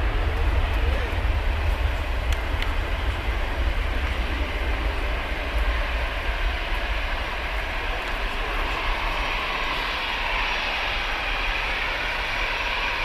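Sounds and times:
jet engines whining: 0.0 - 13.0.

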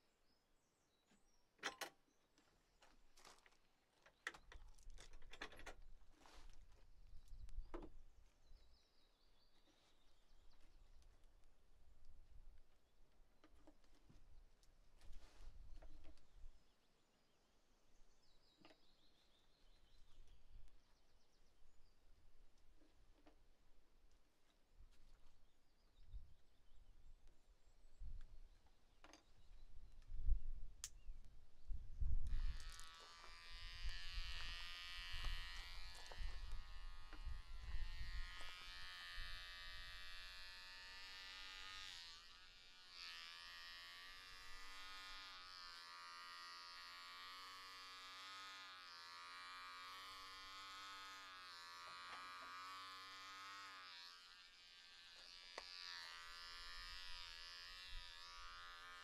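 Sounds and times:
electric hair clippers buzzing: 32.2 - 59.0.

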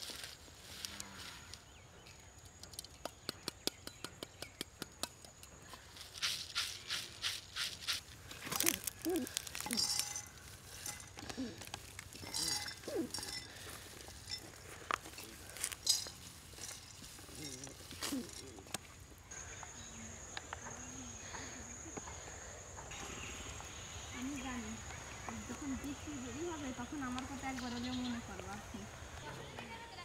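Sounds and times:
seeds clinking against clay: 0.0 - 19.3
dry seeds rattling in basket: 5.8 - 18.8.

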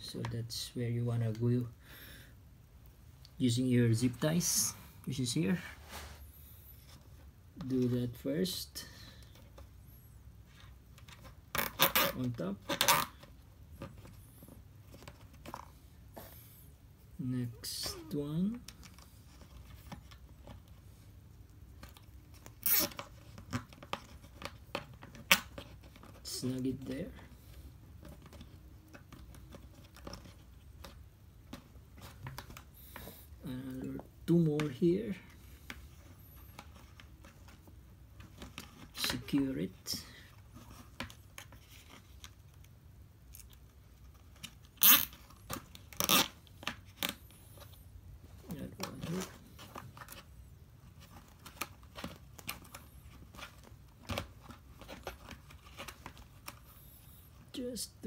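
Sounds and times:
zip tie rasping: 22.6 - 23.1, 44.8 - 46.4.

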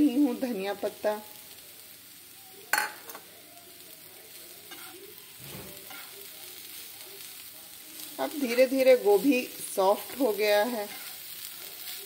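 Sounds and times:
food sizzling in a pan: 0.0 - 12.0
spatula scraping a pan: 4.7 - 6.2, 8.2 - 11.9.

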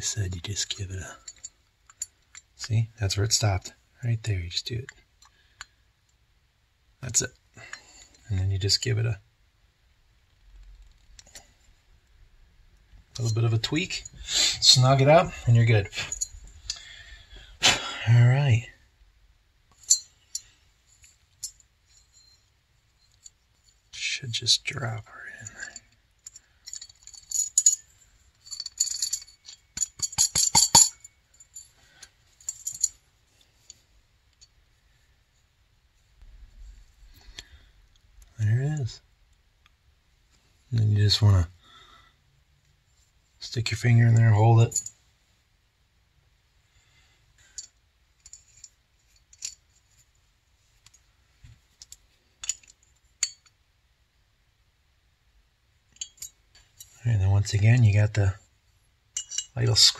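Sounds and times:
metal parts clinking and rattling: 1.2 - 2.5, 13.1 - 17.4, 19.7 - 23.8, 25.4 - 34.6, 47.4 - 50.1, 51.7 - 53.6, 55.9 - 57.8, 59.1 - 59.9.

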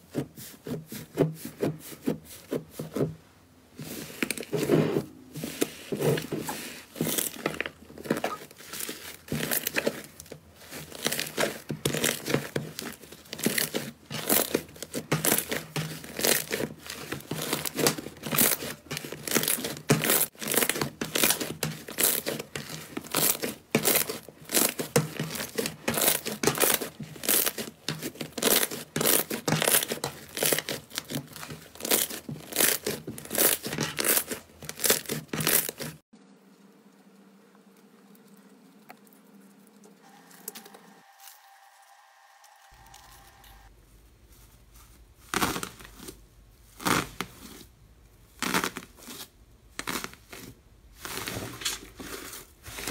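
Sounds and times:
crackly slime squishing: 5.4 - 36.1, 44.6 - 52.9.

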